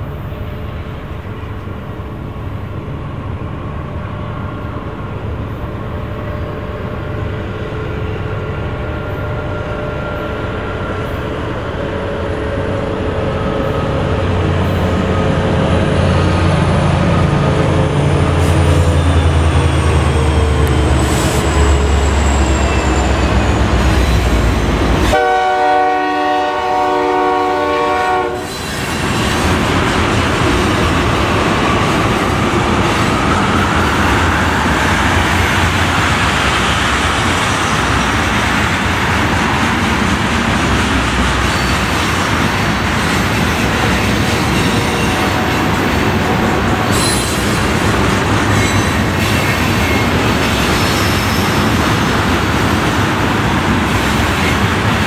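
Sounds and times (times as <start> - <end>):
diesel locomotive engine rumble: 0.0 - 55.0
train horn blast: 25.0 - 28.5
train cars rolling and clattering: 28.4 - 55.0.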